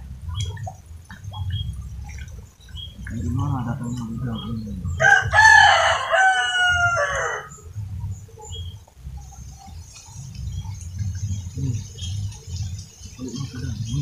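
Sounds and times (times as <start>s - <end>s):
rooster crowing: 5.0s - 7.7s.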